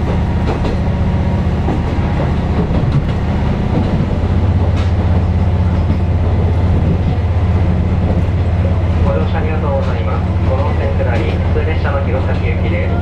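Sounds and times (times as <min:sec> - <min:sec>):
diesel train engine throbbing: 0:00.0 - 0:13.0
train wheels on rails: 0:00.0 - 0:13.0.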